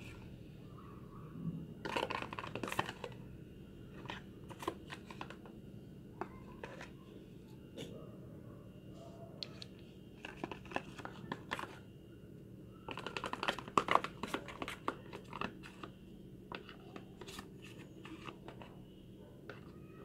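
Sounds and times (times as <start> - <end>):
plastic container crinkling: 1.8 - 3.2.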